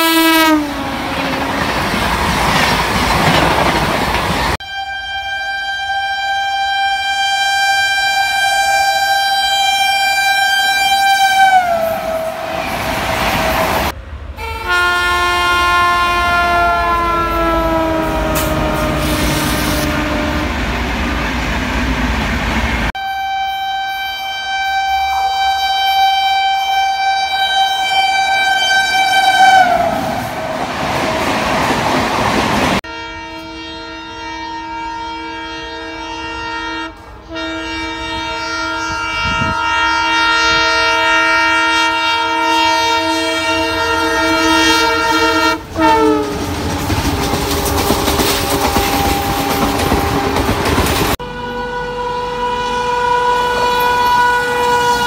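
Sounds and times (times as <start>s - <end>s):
train horn blast: 0.0s - 1.8s, 4.5s - 21.2s, 22.9s - 31.2s, 32.8s - 55.0s
train coaches rattling on track: 0.0s - 4.7s, 8.1s - 32.8s, 37.0s - 55.0s.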